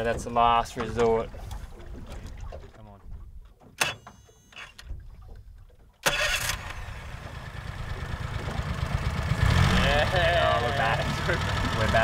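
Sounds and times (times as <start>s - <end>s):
outboard motor running: 4.2s - 12.0s
starter cord pulls: 6.0s - 6.9s.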